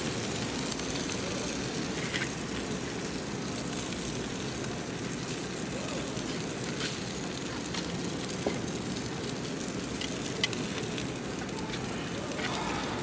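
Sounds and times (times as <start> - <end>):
fat sizzling on grill: 0.0 - 13.0
person talking: 11.5 - 13.0.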